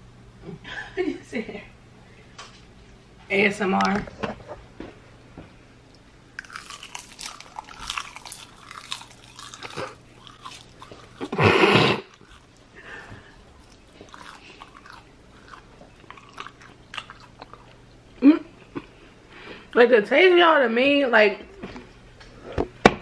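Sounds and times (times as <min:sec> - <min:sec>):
crunching and chewing snack: 0:06.3 - 0:19.0.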